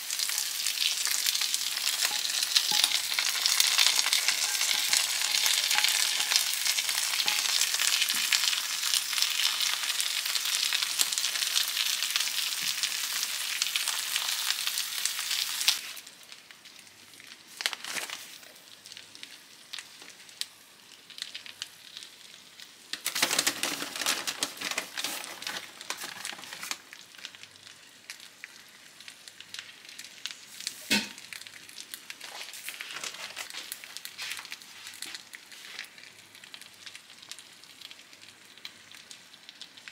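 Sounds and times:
meat sizzling in a frying pan: 0.0 - 39.9.

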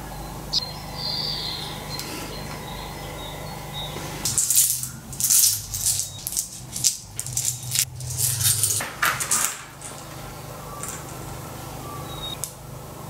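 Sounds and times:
low steady hum: 0.0 - 13.0
coin batteries clinking and scraping: 4.2 - 11.2.

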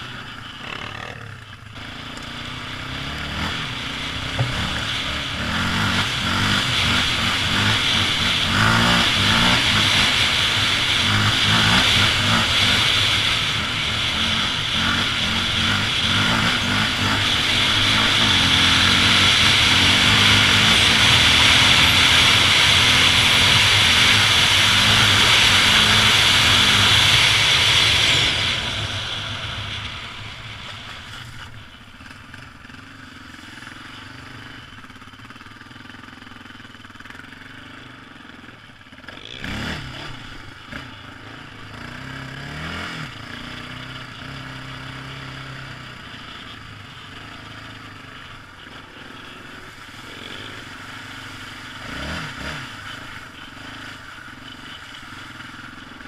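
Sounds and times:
quad engine revving: 0.0 - 56.0
quad engine running: 0.0 - 56.0
loud rushing noise: 2.7 - 31.6.

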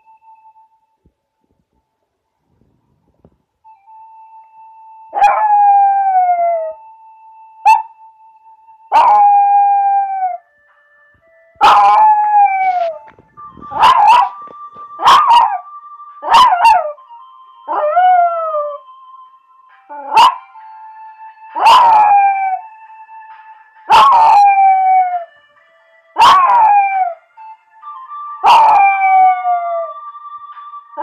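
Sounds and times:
dog howling: 28.4 - 29.9.

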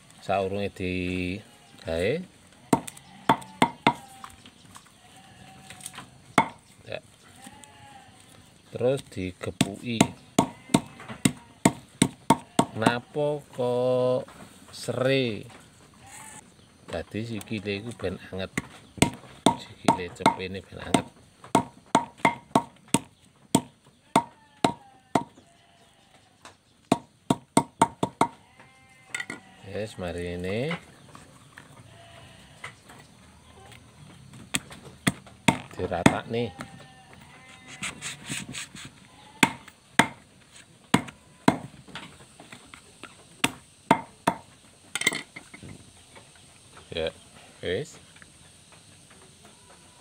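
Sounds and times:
machete chopping on wooden plank: 2.7 - 4.1, 6.4 - 6.6, 9.6 - 13.0, 18.6 - 25.4, 26.9 - 28.4, 34.5 - 36.3, 39.4 - 40.3, 40.9 - 41.8, 43.4 - 45.7.

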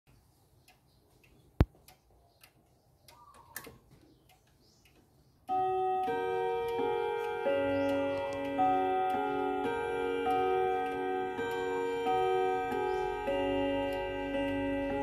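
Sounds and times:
clock ticking: 0.1 - 15.0
clock chime ringing: 5.5 - 15.0.

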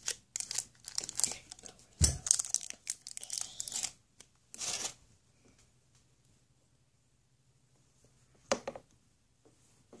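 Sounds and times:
plastic packet crinkling and tearing: 0.0 - 5.0.

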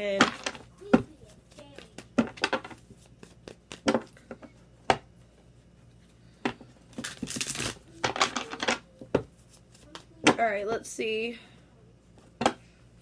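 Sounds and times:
cards rustling shuffling: 7.0 - 8.7.

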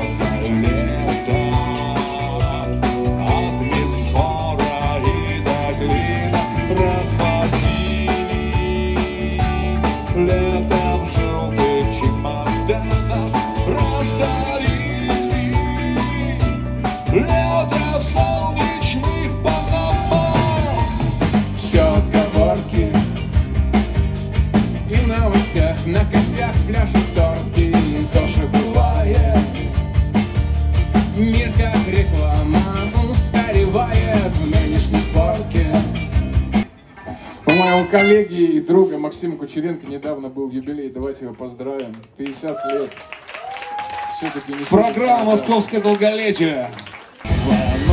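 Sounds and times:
steady drum beat: 0.0 - 36.7, 47.3 - 47.9
live rock band playing: 0.0 - 38.6, 47.1 - 47.9.

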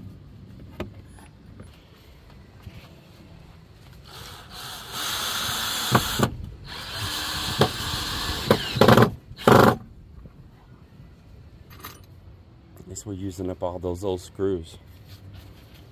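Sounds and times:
power drill driving screw: 4.0 - 9.8
sharp clicks of drill: 4.4 - 9.8.

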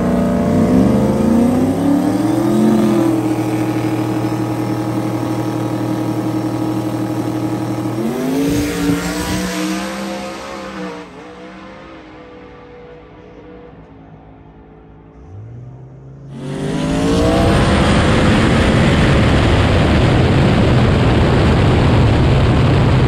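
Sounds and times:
drag car engine at full throttle: 0.0 - 23.0.

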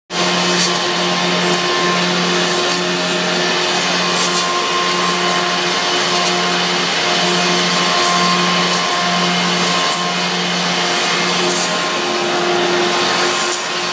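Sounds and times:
woodworking machine motor hum: 0.1 - 13.9.

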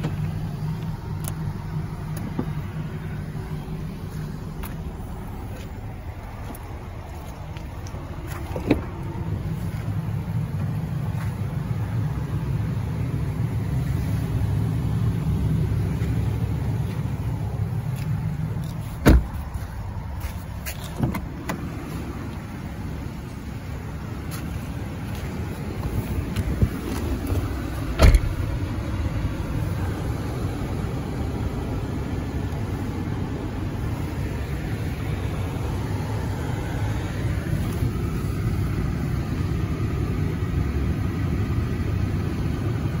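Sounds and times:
car door shutting: 0.0 - 3.0, 8.2 - 9.2, 18.7 - 19.6, 20.7 - 22.2, 25.7 - 28.7
car engine idling: 0.0 - 43.0
steady low rumble: 0.0 - 43.0.

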